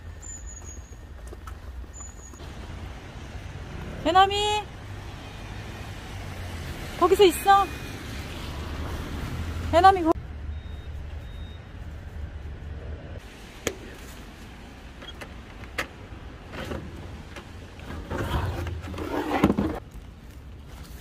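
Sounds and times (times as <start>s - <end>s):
rustling and scraping: 16.5s - 21.0s.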